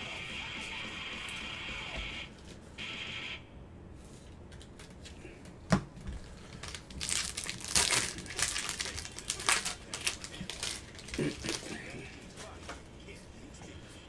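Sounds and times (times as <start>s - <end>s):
wrapper crinkling: 6.2s - 12.0s.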